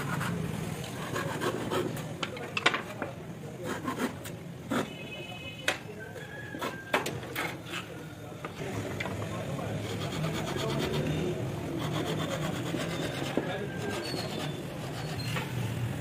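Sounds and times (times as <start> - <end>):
handsaw cutting wood: 0.0 - 2.0, 9.7 - 15.4.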